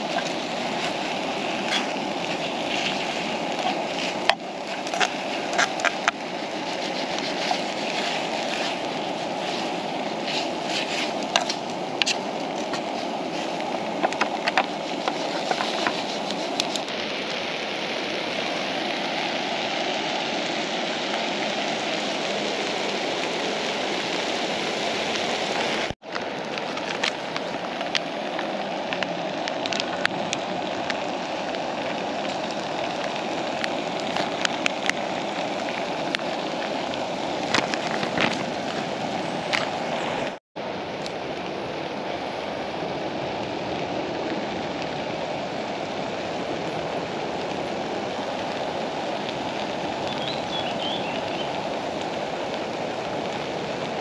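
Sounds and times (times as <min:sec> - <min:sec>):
meat and onions sizzling: 0:00.0 - 0:39.8.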